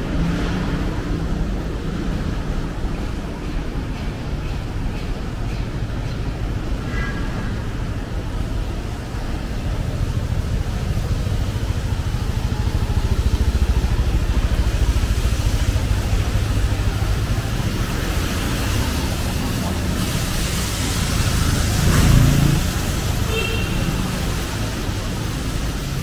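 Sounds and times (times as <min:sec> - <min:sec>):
traffic rumble: 0:00.0 - 0:26.0
motor scooter passing: 0:07.4 - 0:26.0.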